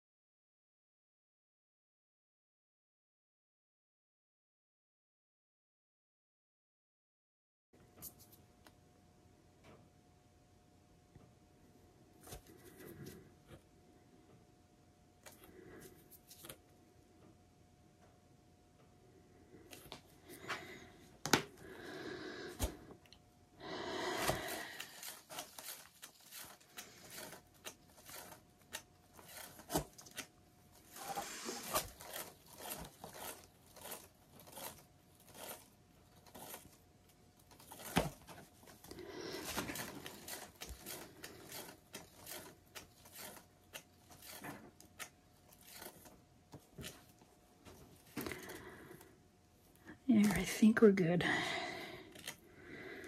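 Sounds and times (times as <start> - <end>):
paper towel rustling: 30.8 - 33.2.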